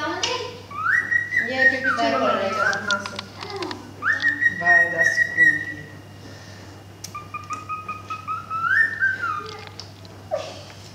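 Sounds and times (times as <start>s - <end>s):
cockatiel whistling: 0.7s - 3.1s, 4.0s - 6.0s, 7.1s - 9.6s.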